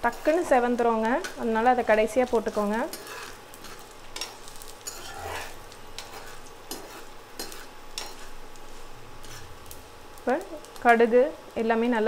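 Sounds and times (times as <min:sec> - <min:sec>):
spices sizzling in hot oil: 0:00.0 - 0:12.0
metal spatula scraping pan: 0:02.3 - 0:09.6.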